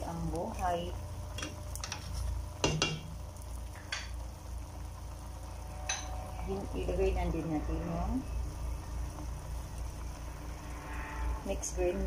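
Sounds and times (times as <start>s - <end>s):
steady low hum: 0.0s - 12.0s
food stirred in metal pot: 1.3s - 3.2s
spatula knocking against pot: 2.6s - 3.1s.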